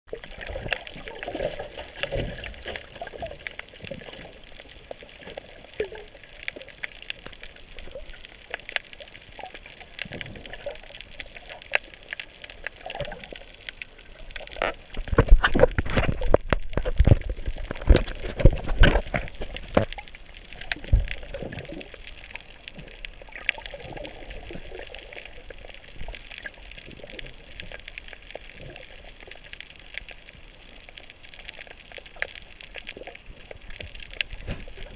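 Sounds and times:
underwater watery wash: 0.1s - 34.9s
splashing and knocks: 14.6s - 19.9s.

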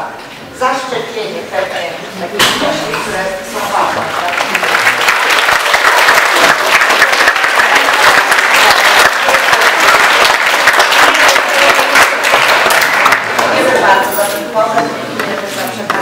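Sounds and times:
audience applauding: 3.7s - 13.8s.

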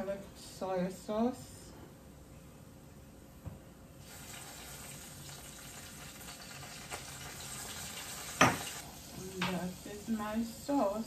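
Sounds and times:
sauce sizzling in hot oil: 4.0s - 11.0s
glass bottle knocking down: 8.4s - 8.6s.

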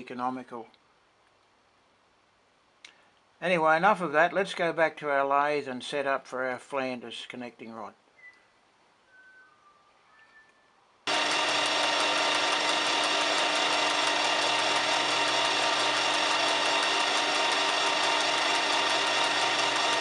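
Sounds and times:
lathe motor whirring: 11.1s - 20.0s.

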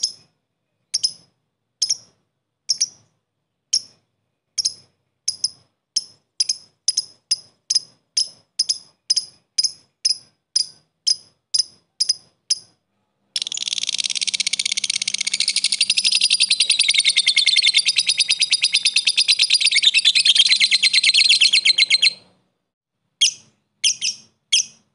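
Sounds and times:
lovebird chattering trill: 0.9s - 3.1s, 3.7s - 4.0s, 4.6s - 12.8s, 13.4s - 22.3s, 23.2s - 24.8s
lovebird ticking chirps: 0.9s - 12.8s, 13.4s - 22.3s, 23.2s - 24.8s.

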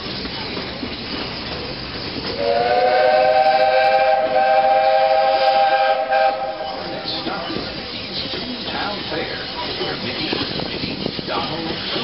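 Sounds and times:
train running noise: 0.0s - 12.0s
steam locomotive chime whistle: 2.3s - 7.6s.

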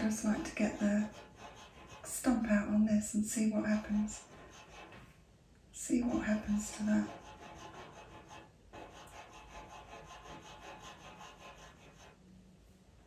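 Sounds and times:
drawing tool scratching on paper: 0.0s - 5.2s, 5.9s - 12.2s.

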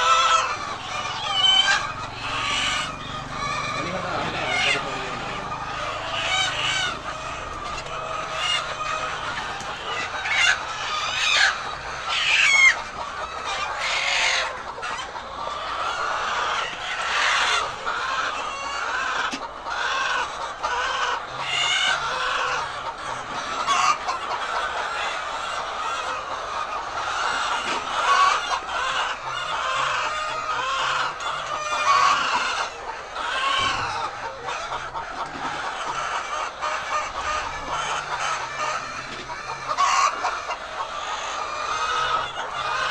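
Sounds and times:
hens clucking: 0.0s - 42.9s.

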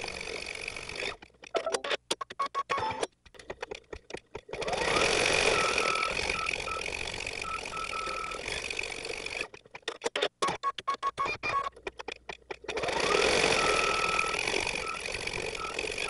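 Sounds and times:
embroidery machine stitching: 0.0s - 16.0s
short high beeps: 5.5s - 8.4s, 13.5s - 15.8s.

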